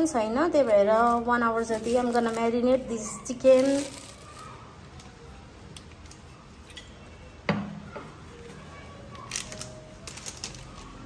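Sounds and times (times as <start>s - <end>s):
plastic packet crinkling: 0.5s - 4.7s, 9.2s - 11.0s.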